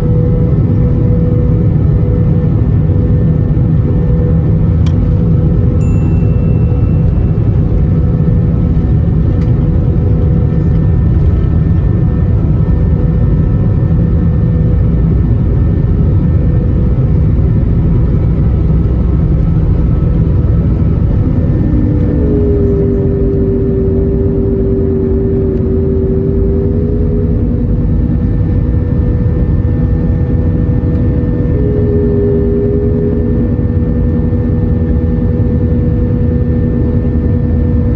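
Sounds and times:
runway rumble from wheels: 0:00.0 - 0:29.9
jet engines at takeoff thrust: 0:00.0 - 0:37.9
steady whine: 0:00.0 - 0:37.9.

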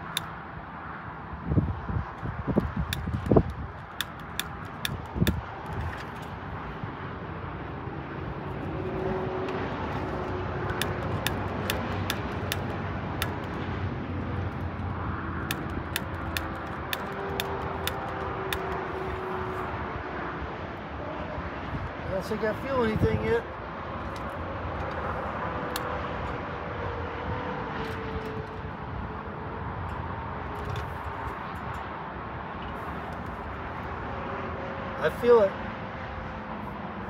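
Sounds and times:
outdoor background noise: 0:00.0 - 0:37.0.

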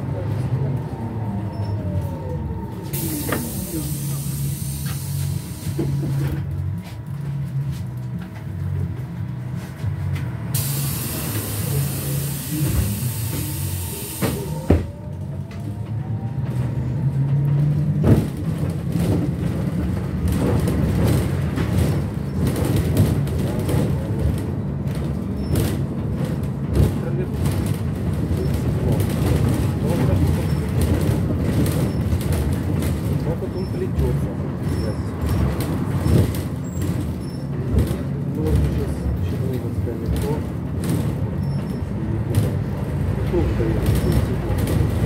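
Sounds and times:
road rumble: 0:00.0 - 0:45.0
compressed air hissing: 0:10.6 - 0:14.5.

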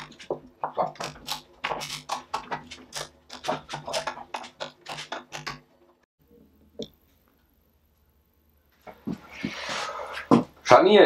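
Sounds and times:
wooden parts clicking and knocking: 0:00.0 - 0:06.0.

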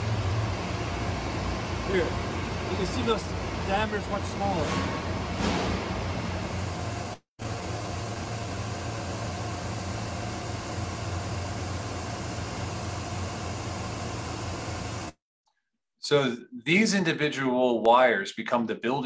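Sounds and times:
machinery humming and hissing: 0:00.0 - 0:15.2.

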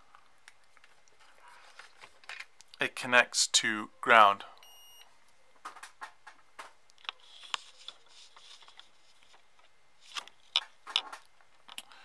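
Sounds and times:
plastic parts clicking and tapping: 0:10.1 - 0:11.9.

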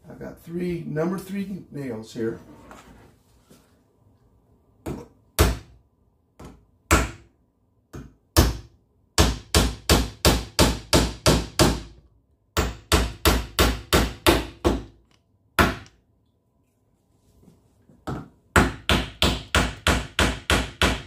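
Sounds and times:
hammer driving nails into wood: 0:07.9 - 0:12.0, 0:12.6 - 0:16.0, 0:18.1 - 0:21.0.

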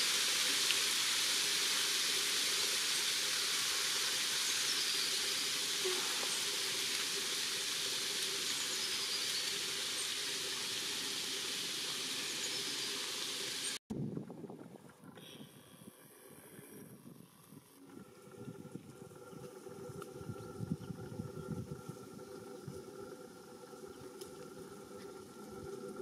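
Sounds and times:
marsh ambience hiss: 0:00.0 - 0:13.8.

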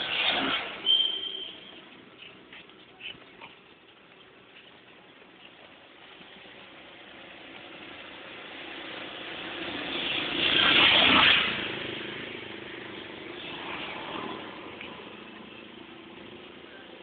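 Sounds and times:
auto-rickshaw engine driving past: 0:00.0 - 0:02.1, 0:05.6 - 0:17.0
passing traffic: 0:00.0 - 0:17.0.

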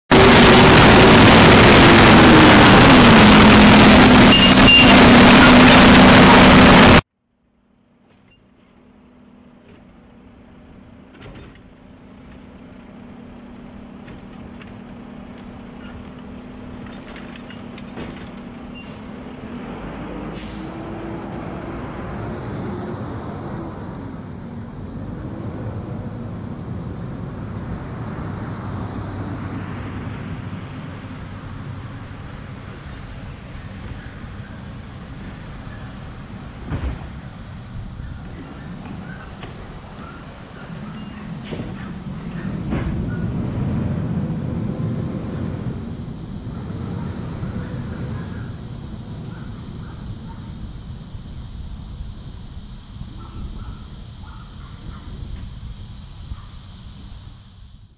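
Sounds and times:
garbage truck diesel engine: 0:00.1 - 0:07.0, 0:07.6 - 0:57.9
loud rushing noise: 0:00.1 - 0:07.1, 0:19.0 - 0:57.9
air-brake hisses: 0:20.3 - 0:20.9.

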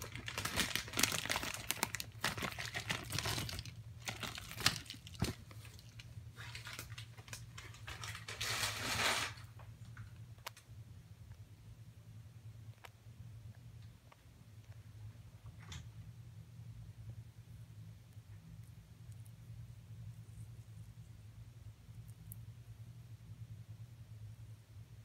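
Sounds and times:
rustling: 0:00.0 - 0:10.2.

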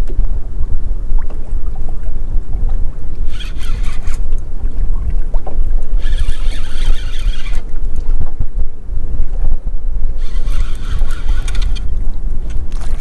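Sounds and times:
wind buffeting microphone: 0:00.0 - 0:13.0
fishing reel rasping hiss: 0:03.3 - 0:04.2, 0:06.0 - 0:07.6, 0:10.2 - 0:11.9.

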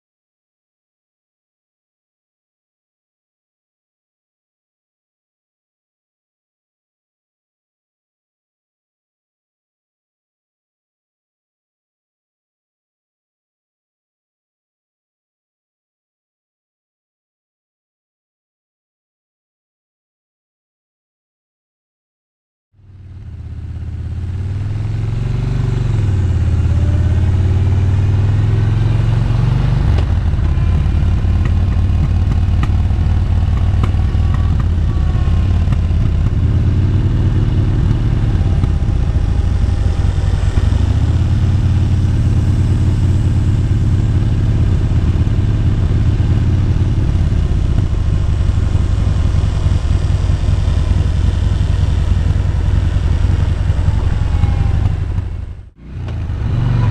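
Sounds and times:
motorcycle engine running: 0:22.8 - 0:56.9.

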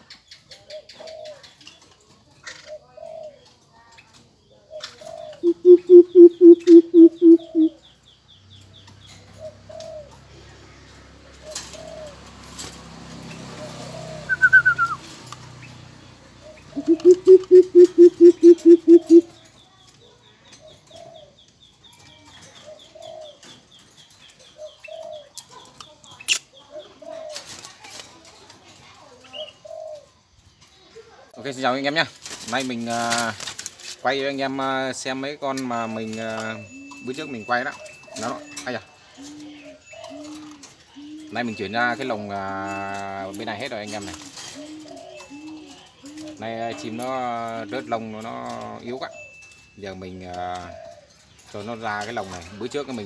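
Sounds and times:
softer bird calls: 0:04.7 - 0:08.0, 0:13.5 - 0:15.8, 0:16.4 - 0:21.4
bird hooting deeply: 0:05.3 - 0:07.8, 0:14.0 - 0:15.0, 0:16.7 - 0:19.3.

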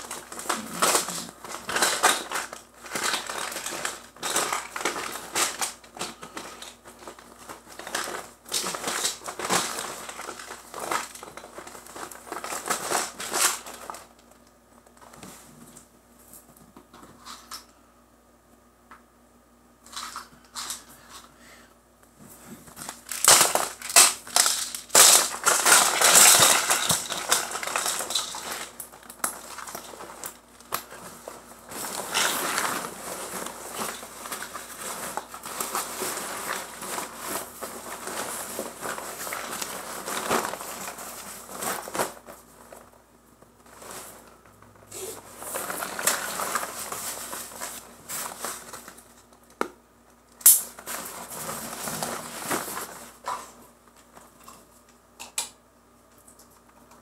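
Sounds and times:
fabric bags rustling: 0:00.0 - 0:14.2, 0:22.3 - 0:43.0, 0:43.6 - 0:49.1, 0:50.7 - 0:53.6.

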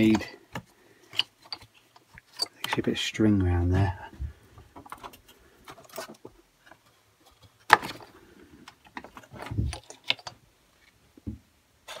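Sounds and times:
plastic parts clicking: 0:07.6 - 0:10.4.

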